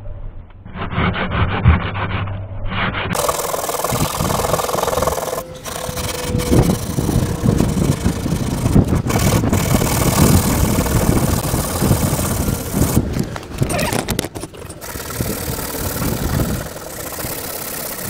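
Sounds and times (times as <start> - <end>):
low rumble: 0.0 - 17.3
sandpaper scratching on metal: 3.1 - 13.0, 14.8 - 18.0.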